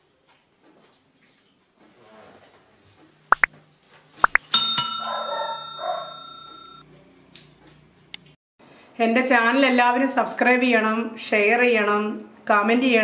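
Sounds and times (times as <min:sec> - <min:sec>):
bell ding: 0:04.5 - 0:06.8.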